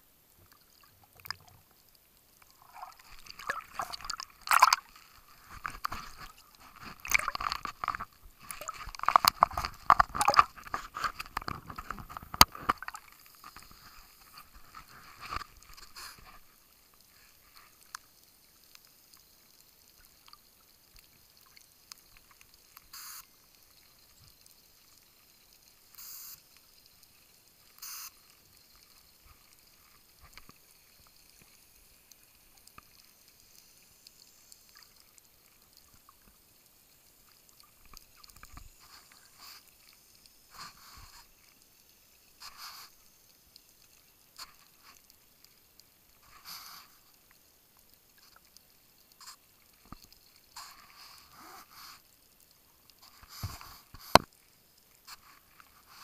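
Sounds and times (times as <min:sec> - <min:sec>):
water splashing against camera: 0:00.4 - 0:16.6, 0:43.8 - 0:56.0
short hissing sounds: 0:13.2 - 0:17.8, 0:22.6 - 0:23.6, 0:25.8 - 0:32.4, 0:38.2 - 0:45.2, 0:46.2 - 0:47.3, 0:49.2 - 0:52.3, 0:53.0 - 0:54.4.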